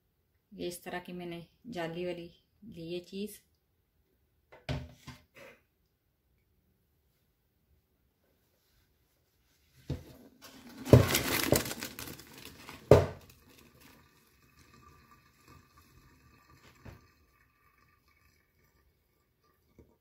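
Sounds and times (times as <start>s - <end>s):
water splashing into colander: 10.6s - 20.0s
faint ticks and drips: 13.3s - 20.0s.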